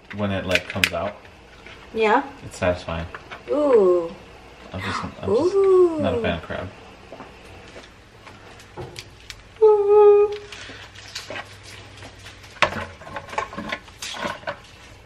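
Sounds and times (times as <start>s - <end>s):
short hum-like vocal sound: 3.5s - 6.4s
crab shell cracking: 8.6s - 9.6s.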